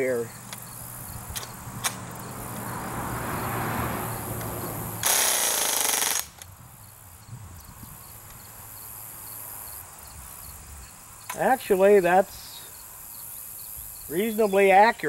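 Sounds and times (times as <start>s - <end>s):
bb gun full-auto burst: 5.0s - 6.4s.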